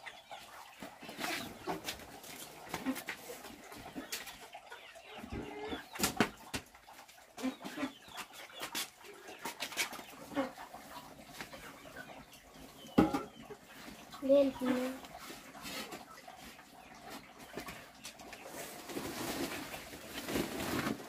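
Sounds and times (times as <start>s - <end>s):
chickens clucking: 0.0s - 21.0s
metal cooking pot clattering: 12.9s - 13.4s.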